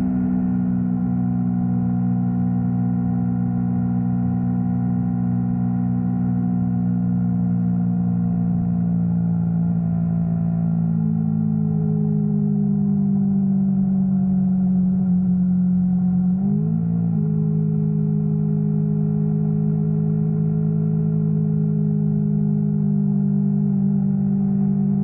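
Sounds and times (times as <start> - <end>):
motorcycle engine cruising: 0.0 - 4.8.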